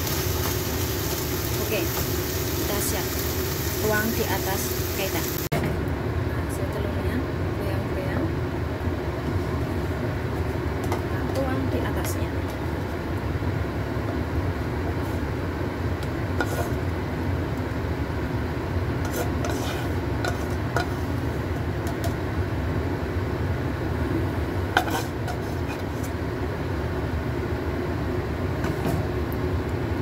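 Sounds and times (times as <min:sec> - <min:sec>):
spatula scraping and tapping a wok: 0:16.4 - 0:16.8, 0:19.0 - 0:21.1, 0:21.8 - 0:22.2, 0:24.8 - 0:26.2.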